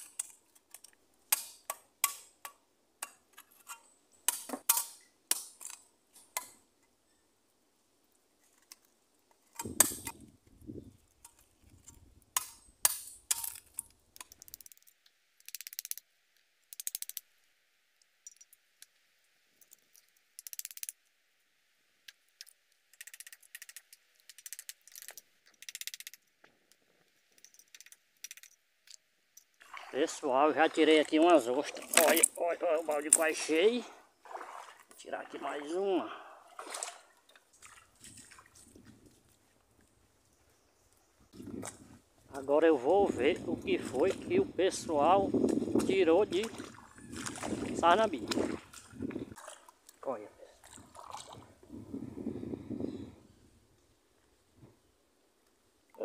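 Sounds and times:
shells clicking together: 0:12.4 - 0:16.1, 0:16.7 - 0:17.3, 0:19.6 - 0:21.0, 0:22.1 - 0:26.2, 0:27.4 - 0:29.5.

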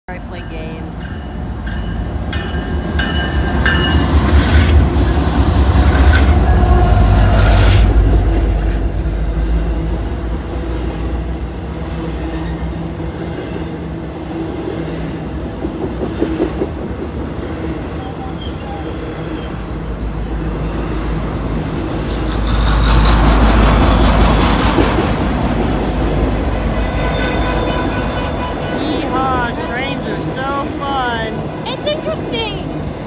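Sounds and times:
diesel locomotive rumble: 0:00.1 - 0:33.0
faint high wheel squeal: 0:06.4 - 0:08.0, 0:08.6 - 0:10.8, 0:22.4 - 0:28.4
freight cars rumbling and clattering: 0:15.1 - 0:33.0.

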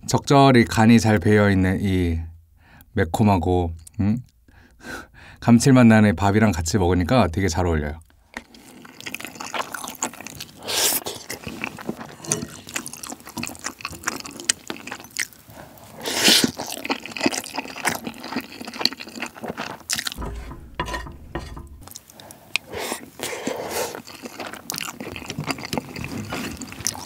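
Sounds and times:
chewing and wet mouth sounds: 0:08.3 - 0:20.2, 0:22.0 - 0:27.0
spoon scraping pot: 0:20.1 - 0:21.9.

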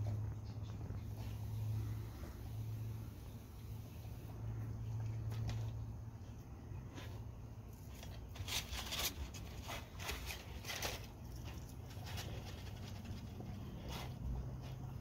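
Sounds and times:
paper balls crinkling: 0:07.0 - 0:14.9.

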